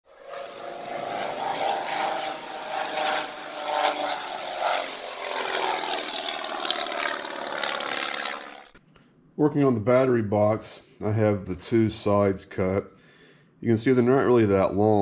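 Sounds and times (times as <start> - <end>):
propeller aircraft engine running: 0.1 - 8.8.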